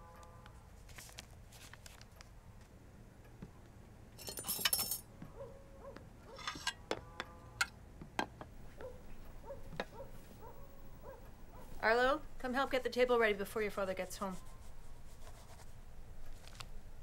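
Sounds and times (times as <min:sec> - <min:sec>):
dishes and silverware clinking: 0:04.2 - 0:05.1, 0:06.3 - 0:07.0.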